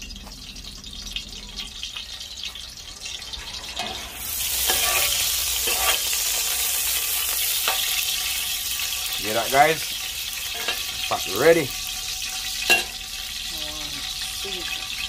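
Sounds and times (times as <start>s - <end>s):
hot oil sizzling: 0.0s - 15.0s
utensil scraping pot: 2.9s - 8.9s.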